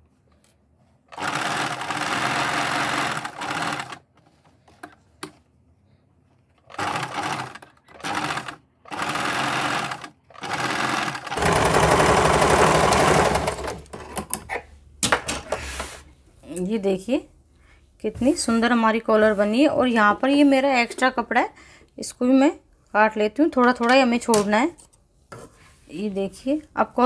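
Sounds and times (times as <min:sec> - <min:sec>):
electric sewing machine stitching: 0:01.1 - 0:04.1, 0:06.6 - 0:13.9.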